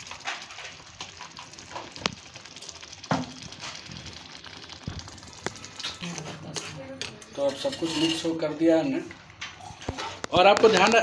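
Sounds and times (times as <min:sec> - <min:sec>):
thick stew bubbling and popping: 0:00.0 - 0:07.7, 0:08.3 - 0:11.0.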